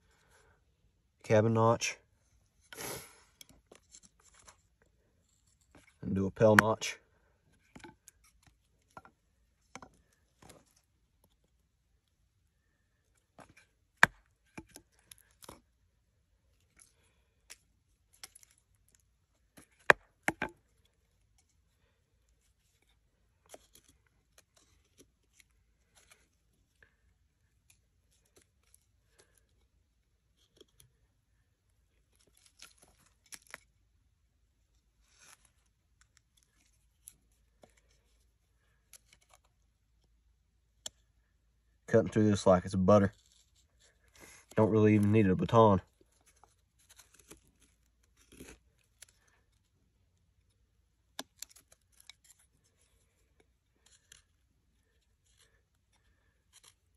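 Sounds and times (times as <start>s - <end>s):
knife carving wood: 2.5s - 6.8s, 7.5s - 11.6s, 13.1s - 33.9s, 43.1s - 45.2s, 45.9s - 56.9s.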